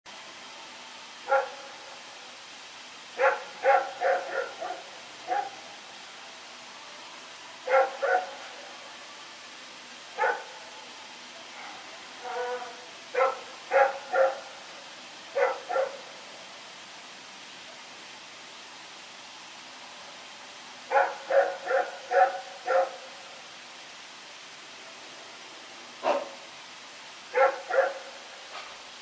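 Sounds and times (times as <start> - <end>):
steady hiss: 0.1 - 29.0
dog barking: 1.3 - 1.6, 3.2 - 5.6, 7.7 - 8.4, 10.2 - 10.5, 11.6 - 14.5, 15.4 - 16.0, 20.9 - 23.0, 26.0 - 26.4, 27.3 - 28.7.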